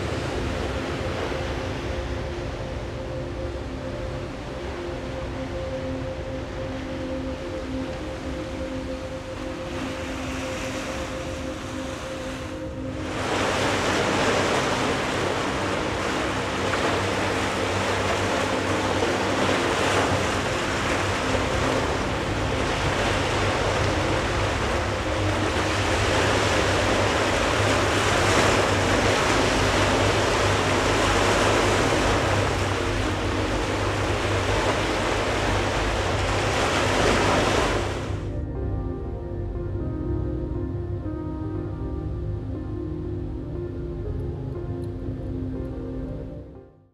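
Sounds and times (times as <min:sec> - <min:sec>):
waves breaking over rocks: 0:09.7 - 0:38.2.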